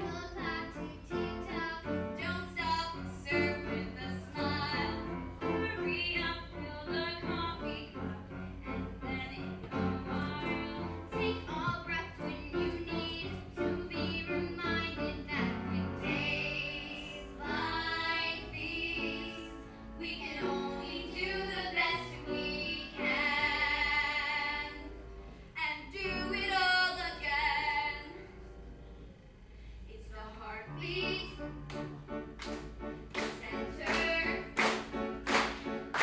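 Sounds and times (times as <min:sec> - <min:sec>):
girls singing: 0:00.0 - 0:08.2, 0:09.0 - 0:24.9, 0:33.2 - 0:34.9
piano accompaniment: 0:00.0 - 0:29.2, 0:30.6 - 0:36.0.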